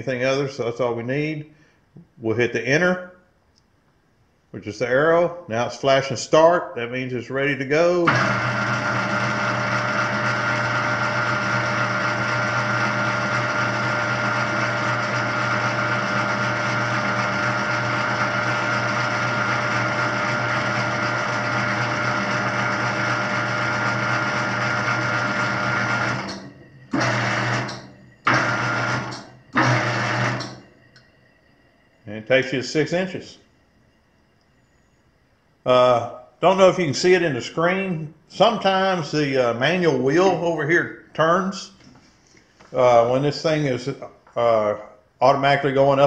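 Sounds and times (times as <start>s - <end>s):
motorised table-lift drive running: 8.1s - 31.1s.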